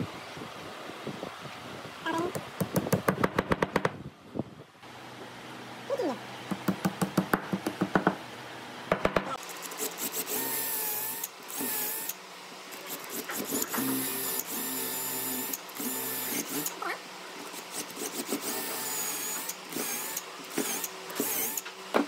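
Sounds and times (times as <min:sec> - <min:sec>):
electric drill boring into wood: 0:09.8 - 0:12.2, 0:12.9 - 0:16.8, 0:17.5 - 0:21.7.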